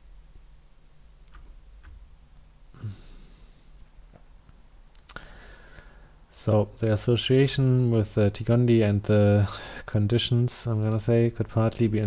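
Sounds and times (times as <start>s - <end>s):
low steady hum: 0.0s - 12.0s
person sighing: 2.7s - 3.6s
mouse clicks: 10.8s - 11.8s.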